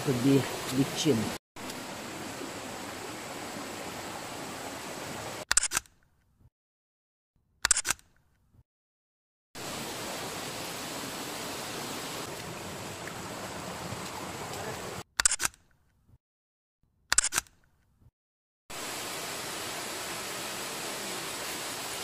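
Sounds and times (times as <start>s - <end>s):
stream and waterfall rushing: 0.0s - 5.4s, 9.6s - 15.0s, 18.7s - 22.0s
camera shutter clicks: 5.5s - 6.0s, 7.6s - 8.2s, 15.2s - 15.6s, 17.1s - 17.6s.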